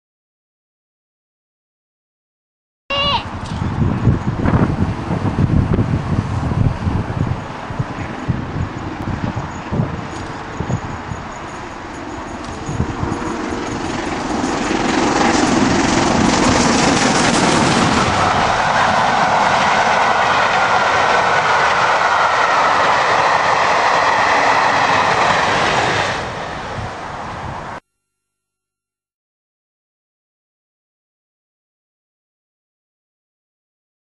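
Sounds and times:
steam locomotive passing: 0:03.3 - 0:27.8
coaches rushing past with wheel clatter: 0:03.4 - 0:27.6.

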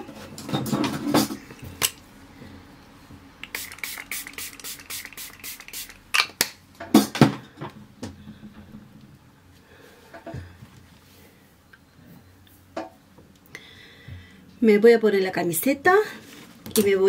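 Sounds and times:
spray bottle hissing: 0:03.4 - 0:06.2.

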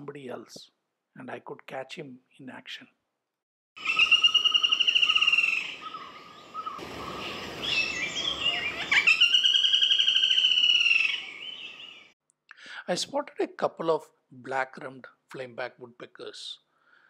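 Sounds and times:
woodpecker trilling call: 0:03.8 - 0:12.1
soft bird chirps: 0:03.8 - 0:12.2.

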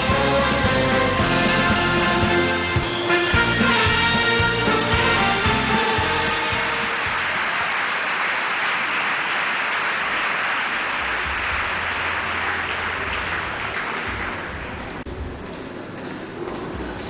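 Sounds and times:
audience applauding: 0:04.6 - 0:15.0.

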